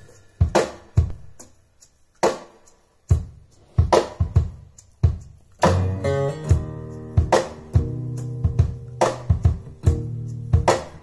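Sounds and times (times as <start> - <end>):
drum-like hits: 0.0 - 1.6, 2.2 - 11.0
guitar chord with bass line: 5.6 - 9.0.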